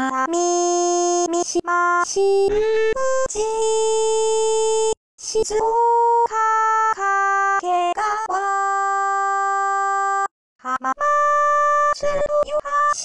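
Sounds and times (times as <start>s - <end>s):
synthesized singing voice: 10.6s - 13.0s.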